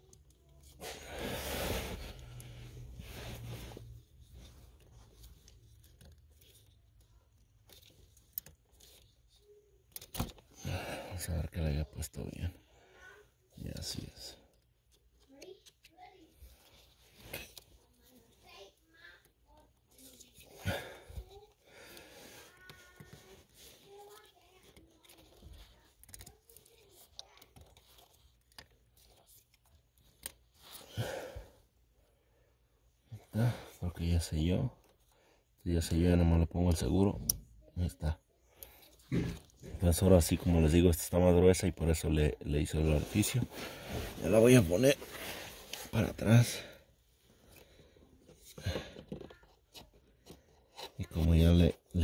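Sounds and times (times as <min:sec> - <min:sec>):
rustling scrape: 0:01.3 - 0:06.4
hands handling plastic parts: 0:01.7 - 0:10.6, 0:19.2 - 0:30.9, 0:47.4 - 0:52.0.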